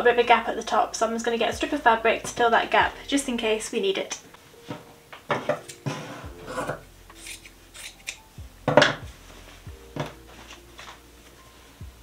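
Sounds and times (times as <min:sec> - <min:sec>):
fabric rustling: 0:09.0 - 0:12.0.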